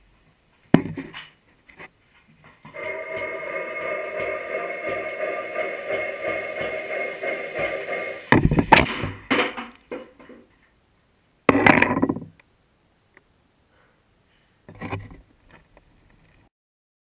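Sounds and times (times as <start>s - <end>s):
loud burst of noise: 2.7s - 9.2s
steady hum: 2.7s - 9.3s.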